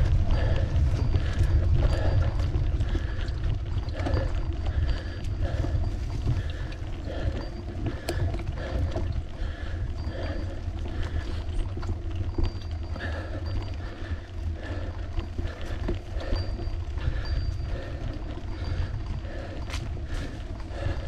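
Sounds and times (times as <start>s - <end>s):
wind rumbling on microphone: 0.0s - 21.0s.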